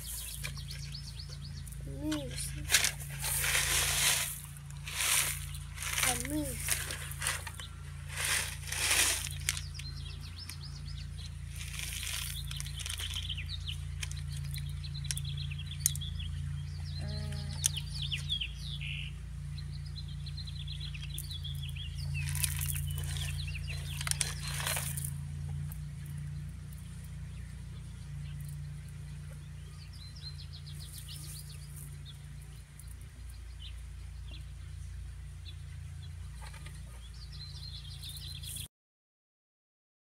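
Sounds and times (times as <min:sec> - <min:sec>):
small songbirds chirping: 0:00.0 - 0:38.7
steady low hum: 0:00.0 - 0:38.7
pebbles clattering and rattling: 0:02.1 - 0:10.7, 0:11.5 - 0:16.1, 0:21.1 - 0:26.8, 0:30.8 - 0:32.0.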